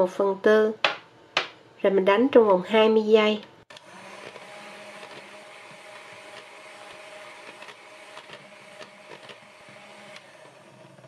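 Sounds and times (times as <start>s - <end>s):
electric hand mixer whirring: 3.7s - 11.0s.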